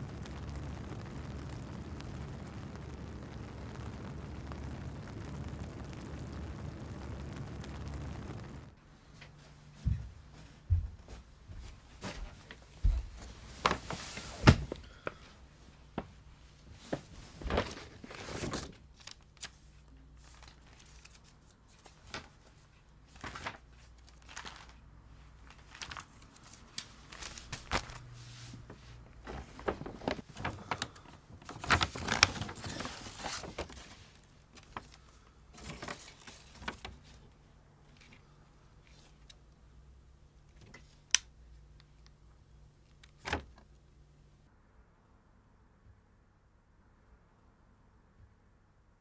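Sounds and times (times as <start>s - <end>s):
faint low hum: 0.0s - 49.0s
paper rustling and crinkling: 12.0s - 15.2s, 15.9s - 39.4s.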